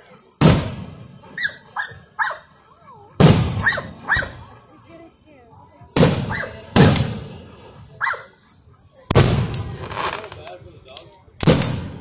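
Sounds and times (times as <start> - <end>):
firework booms echoing: 0.4 - 1.0, 3.2 - 3.7, 6.0 - 7.2, 9.1 - 10.5
firework crackles: 9.1 - 10.7.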